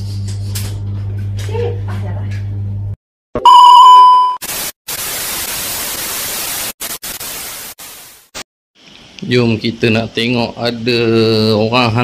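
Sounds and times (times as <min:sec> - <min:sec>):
loud electronic beep: 0:03.4 - 0:04.4
tv static hiss: 0:04.4 - 0:08.3.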